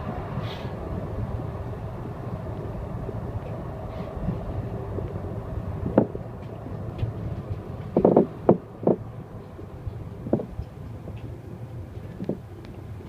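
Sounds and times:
train low rumble: 0.0 - 13.0
cab door knocking and rattling: 7.9 - 9.0, 10.3 - 10.5.

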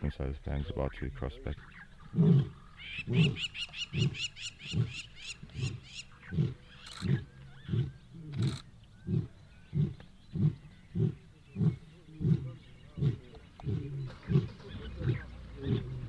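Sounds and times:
lion roaring grunts: 5.5 - 16.0.

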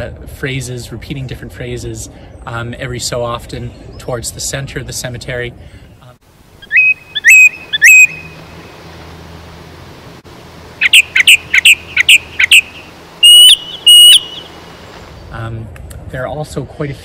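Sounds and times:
thrush singing whistled phrases: 6.6 - 8.4, 10.8 - 14.6.

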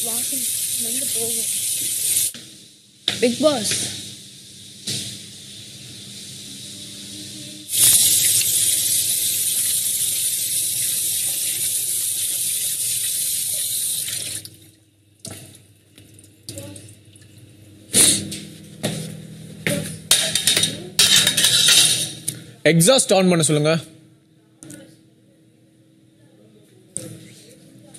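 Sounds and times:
tap water running into sink: 0.0 - 2.4, 7.7 - 14.6.

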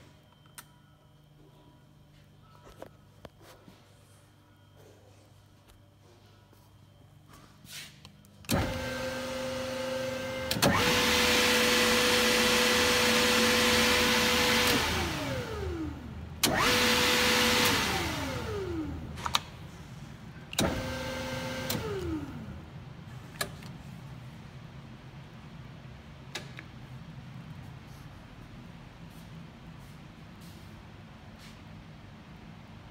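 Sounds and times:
mixer motor humming: 8.5 - 19.2.

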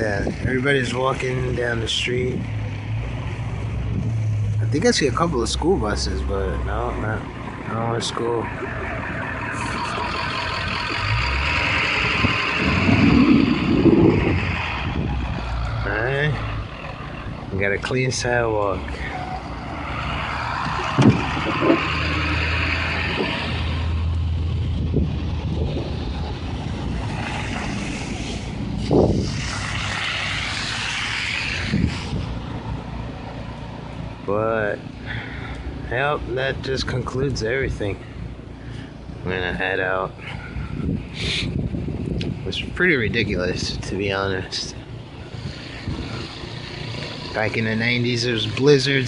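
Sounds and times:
truck engine: 0.0 - 49.0
car bump: 20.6 - 22.0
car tyres hissing through slush: 27.0 - 32.5, 45.2 - 49.0.

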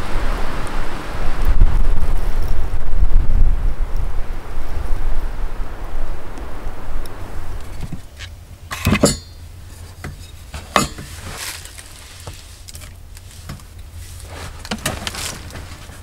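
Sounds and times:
brief metallic ring: 8.7 - 9.4
cookware clinking and knocking: 8.7 - 9.4, 10.0 - 11.1.

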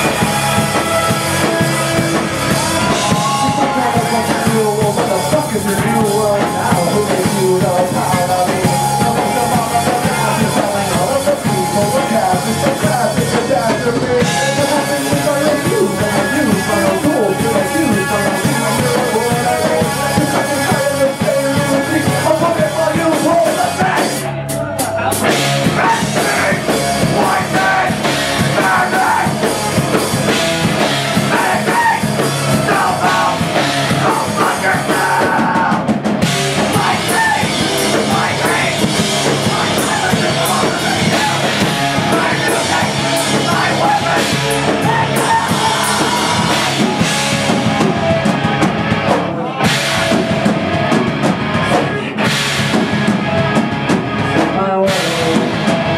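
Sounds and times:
live rock band playing: 0.0 - 55.9
person singing into microphone: 2.5 - 29.4, 31.2 - 36.0, 36.6 - 47.9.

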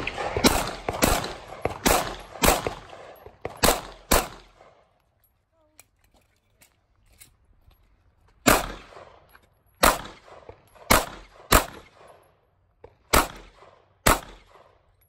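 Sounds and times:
pistol shots with echo: 0.0 - 4.8, 8.4 - 9.2, 9.8 - 12.2, 13.1 - 14.8.

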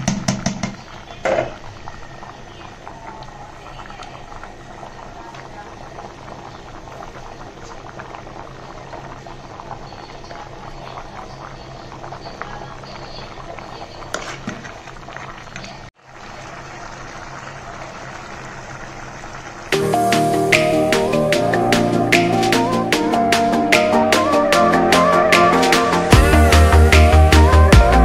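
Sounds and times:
pot boiling with bubbling: 0.0 - 22.1.

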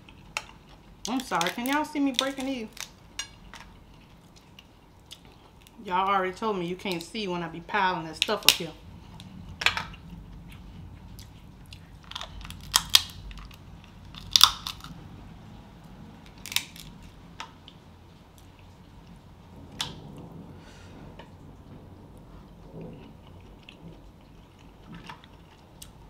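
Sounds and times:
crab shells cracking: 0.0 - 5.8, 8.2 - 10.1, 11.7 - 15.0, 16.2 - 17.8.

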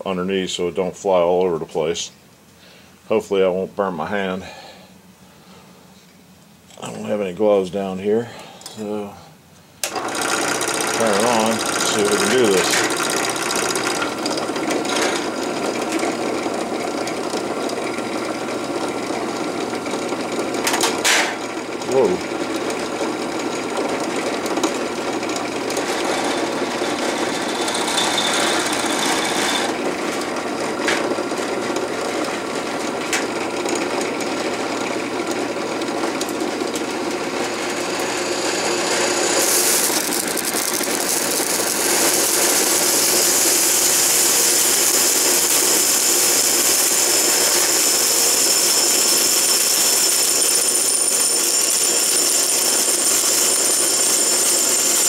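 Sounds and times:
drill press running: 9.8 - 55.0.

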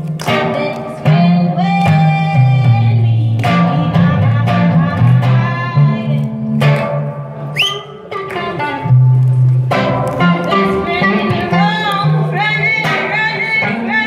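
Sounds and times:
electric guitar chords: 0.0 - 14.0
live band music: 0.0 - 14.0.

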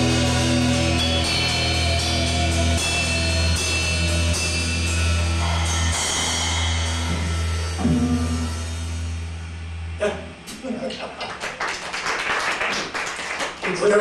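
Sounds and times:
live rock band playing: 0.0 - 6.4
cymbal crashes: 0.0 - 10.5.

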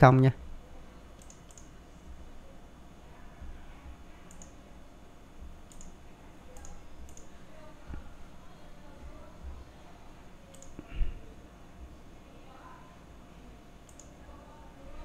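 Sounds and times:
low steady hum: 0.0 - 15.0
computer mouse clicks: 1.2 - 1.7, 4.3 - 4.6, 5.7 - 6.0, 6.6 - 7.3, 10.5 - 10.9, 13.9 - 14.2.

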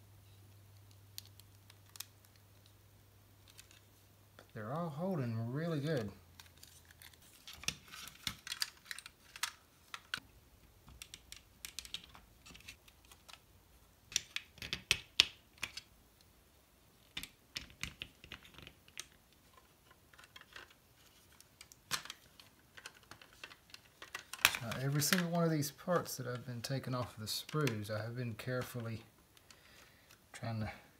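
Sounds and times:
plastic model parts clicking: 7.9 - 10.2, 10.8 - 13.4.

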